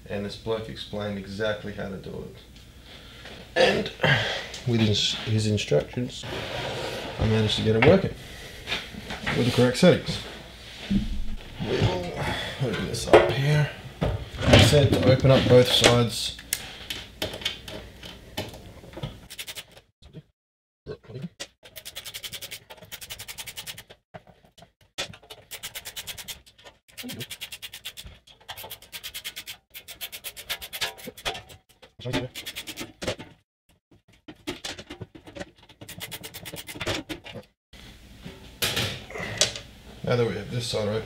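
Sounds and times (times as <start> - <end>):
screwdriver rapid clicking: 19.3 - 19.7, 21.6 - 23.9, 25.4 - 31.2, 35.8 - 36.9.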